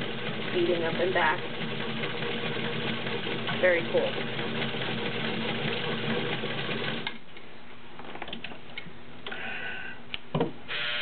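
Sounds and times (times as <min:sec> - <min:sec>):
sewing machine running: 0:00.0 - 0:07.2, 0:10.7 - 0:11.0.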